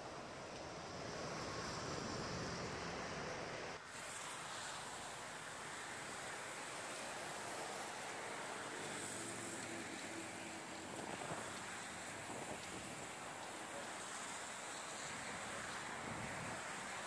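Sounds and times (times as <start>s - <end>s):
wind on microphone: 10.7s - 13.5s, 15.0s - 17.0s.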